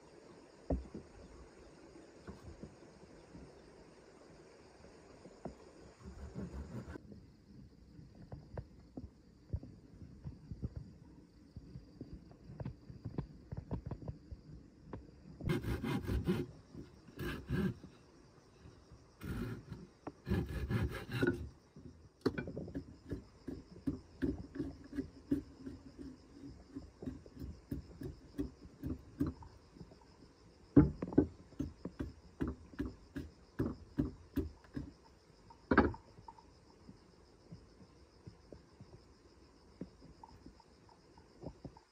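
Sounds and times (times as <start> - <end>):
blade scraping wood: 6.0 - 7.0, 15.5 - 18.0, 19.2 - 21.6.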